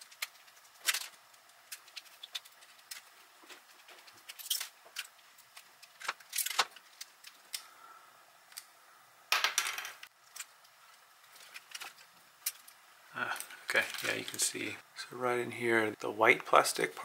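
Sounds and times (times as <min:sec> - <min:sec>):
small plastic parts clicking and rattling: 0:00.0 - 0:07.7, 0:10.0 - 0:14.4.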